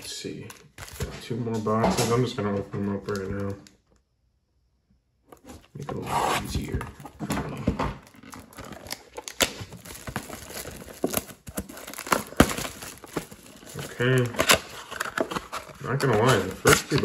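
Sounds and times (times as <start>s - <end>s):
plastic shrink-wrap crinkling: 8.0s - 17.0s.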